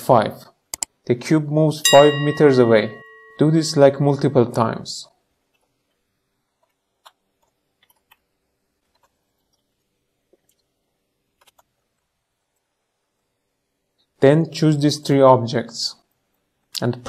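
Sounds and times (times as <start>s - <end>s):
keyboard and mouse clicks: 0.7s - 0.9s, 6.6s - 8.3s, 11.4s - 11.7s.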